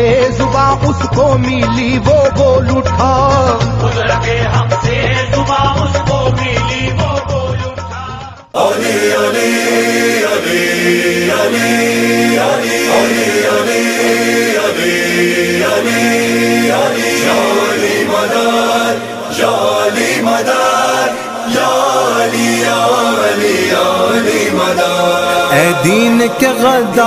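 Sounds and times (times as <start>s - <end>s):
voices chanting a lament: 8.1s - 27.0s.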